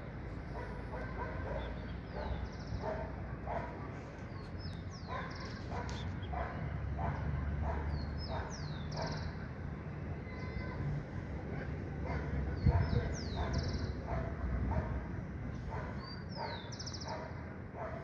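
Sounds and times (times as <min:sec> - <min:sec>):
dog barking: 0:00.6 - 0:04.0, 0:05.0 - 0:09.2, 0:12.0 - 0:15.0, 0:15.7 - 0:18.0.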